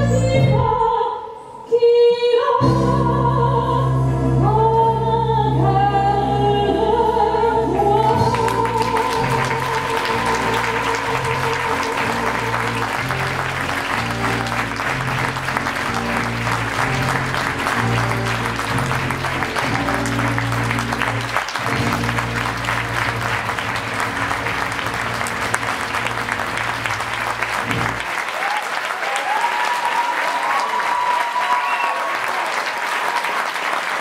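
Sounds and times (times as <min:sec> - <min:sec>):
live band music: 0:02.6 - 0:28.1
audience applause: 0:08.0 - 0:34.0.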